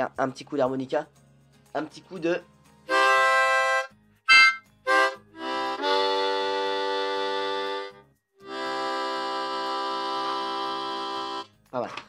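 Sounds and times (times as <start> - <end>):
harmonica chords: 2.8 - 11.6.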